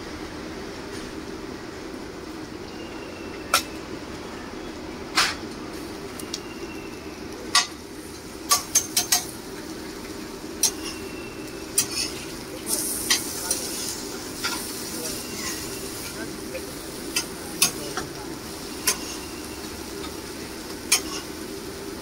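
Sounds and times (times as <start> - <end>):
steady background hum: 0.0 - 22.0
sizzling hiss: 5.0 - 22.0
metal spatula clinking on griddle: 8.5 - 9.3, 10.6 - 11.1, 11.8 - 12.2, 18.8 - 19.2, 20.9 - 21.3.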